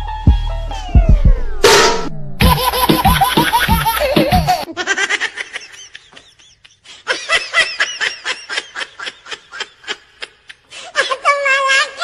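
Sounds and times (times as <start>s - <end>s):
music: 0.0s - 4.7s
high-pitched laughter: 2.4s - 12.0s.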